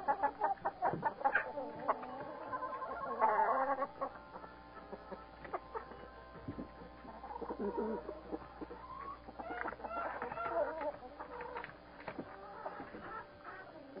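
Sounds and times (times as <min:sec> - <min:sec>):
hens clucking: 0:00.0 - 0:14.0.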